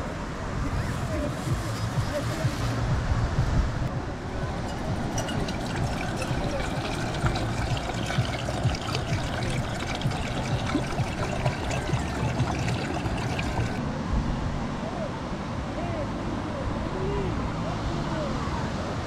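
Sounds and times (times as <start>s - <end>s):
water pouring into metal pot: 4.4s - 13.8s.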